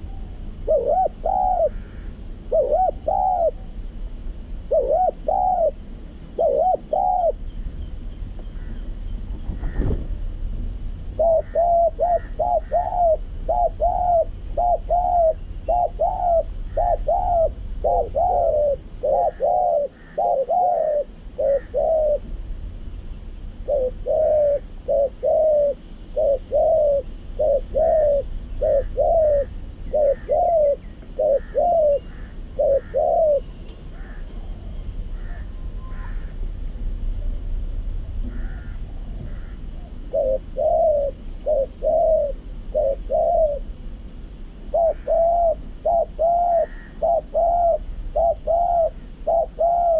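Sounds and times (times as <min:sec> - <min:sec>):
doves cooing: 0:00.0 - 0:10.2, 0:11.0 - 0:36.6, 0:38.1 - 0:43.8, 0:44.5 - 0:49.9
faint high bird chirps: 0:22.8 - 0:36.2.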